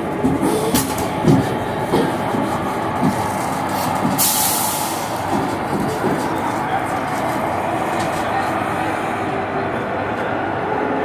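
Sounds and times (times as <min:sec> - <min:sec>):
locomotive wheels knocking and clicking: 0:00.0 - 0:08.6.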